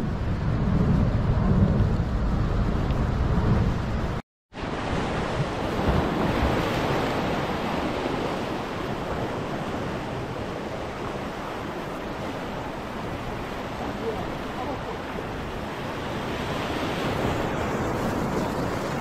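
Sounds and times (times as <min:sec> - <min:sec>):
wind on microphone: 0:00.0 - 0:19.0
sea surf washing over rocks: 0:04.6 - 0:19.0.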